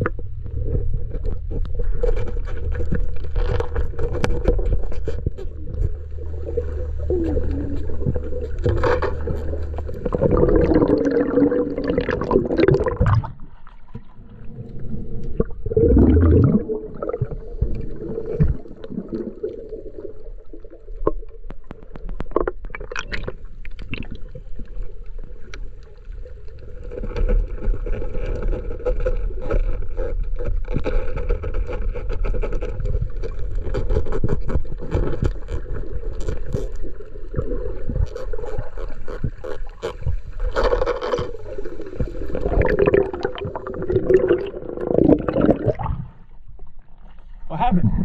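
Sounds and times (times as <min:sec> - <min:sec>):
faint steady hum: 0:00.0 - 0:29.4
clicks and crackles: 0:00.0 - 0:45.4
muffled underwater rumble: 0:00.0 - 0:48.0
splashing and bubbling: 0:00.0 - 0:48.0.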